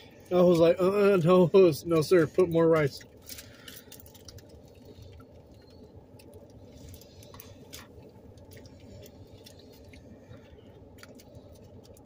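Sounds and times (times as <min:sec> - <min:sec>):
steady low hum: 0:00.0 - 0:12.0
foil wrapper rustling: 0:02.8 - 0:12.0
people chewing wetly: 0:03.0 - 0:12.0.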